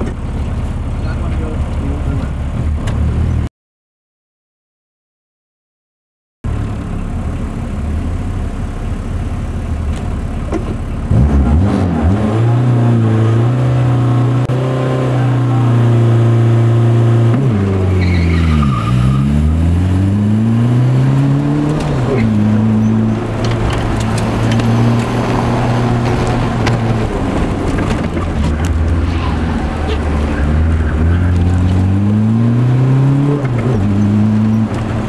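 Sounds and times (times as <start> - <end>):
car engine revving: 10.6 - 35.0.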